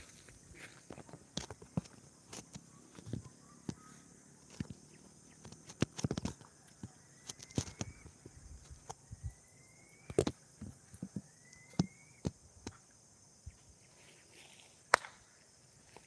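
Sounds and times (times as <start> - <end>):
footsteps on grass: 0.0 - 5.8, 13.9 - 14.9
bird whistling: 9.0 - 10.2, 11.2 - 12.3.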